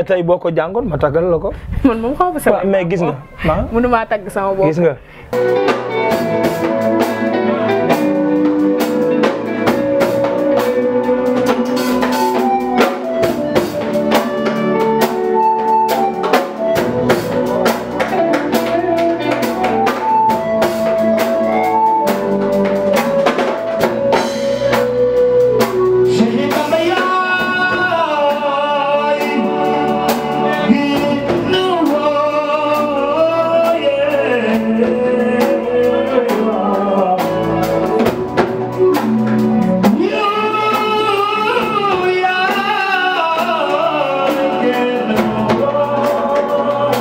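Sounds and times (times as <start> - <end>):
drum kit with rimshots: 0.7 - 47.0
keyboard melody: 1.9 - 47.0
man singing: 22.8 - 47.0.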